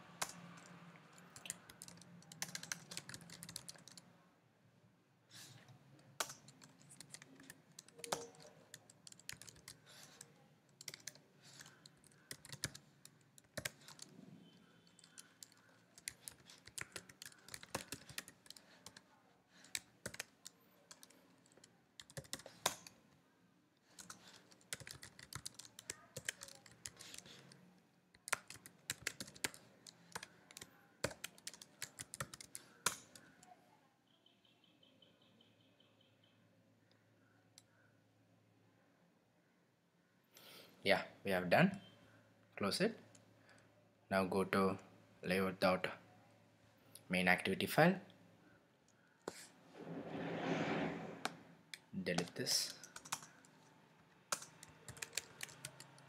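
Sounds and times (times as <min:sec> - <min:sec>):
keyboard typing: 0:00.0 - 0:04.0, 0:06.1 - 0:23.0, 0:23.8 - 0:33.5, 0:51.2 - 0:56.0.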